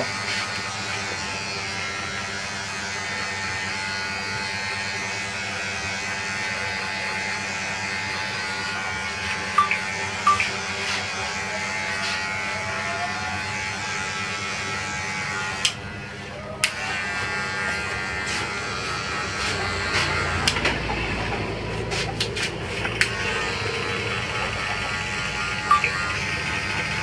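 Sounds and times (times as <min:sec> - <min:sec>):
electric hair clippers buzzing: 0:00.0 - 0:27.0.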